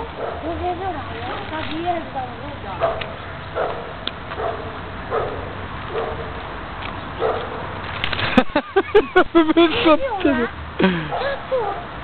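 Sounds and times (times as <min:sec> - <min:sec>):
dog barking: 0:00.0 - 0:00.5, 0:02.8 - 0:06.3, 0:07.2 - 0:07.7, 0:11.1 - 0:11.9.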